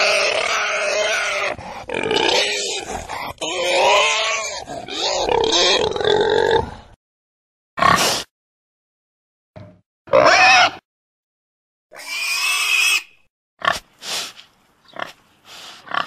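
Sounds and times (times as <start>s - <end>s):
pig grunting: 0.0s - 7.0s.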